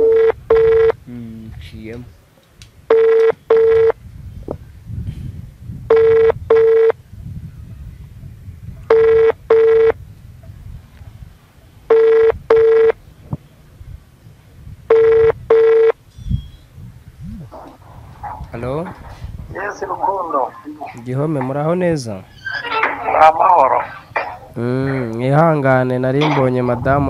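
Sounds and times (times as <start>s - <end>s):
phone ringback tone double beep: 0.0s - 1.0s, 2.9s - 4.0s, 5.9s - 7.0s, 8.9s - 10.0s, 11.9s - 13.0s, 14.9s - 16.4s.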